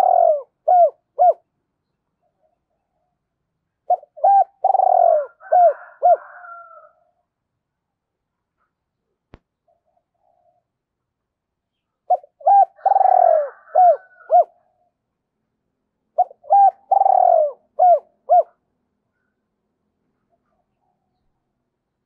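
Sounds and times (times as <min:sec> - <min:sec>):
dove cooing: 0:00.0 - 0:01.5, 0:03.8 - 0:07.0, 0:09.7 - 0:10.7, 0:12.1 - 0:14.9, 0:16.1 - 0:18.6.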